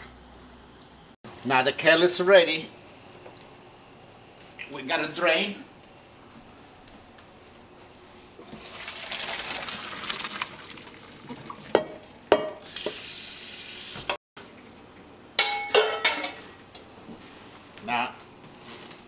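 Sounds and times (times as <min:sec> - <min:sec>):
water pouring and splashing: 0:08.4 - 0:11.8
metal pot and bowl clanking: 0:11.6 - 0:13.0, 0:15.4 - 0:16.4
metal pot knocking on sink: 0:11.7 - 0:12.6.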